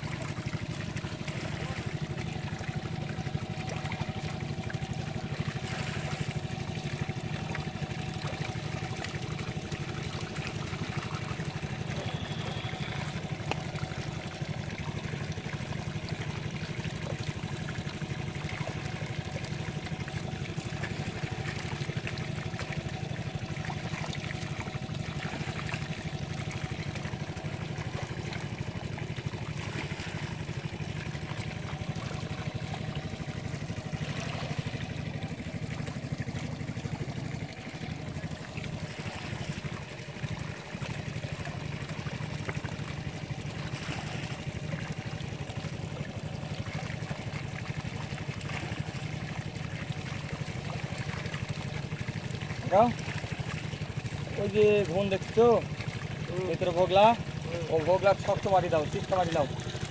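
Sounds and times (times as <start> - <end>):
steady low hum: 0.0 - 54.4
water pouring into basket: 0.0 - 59.9.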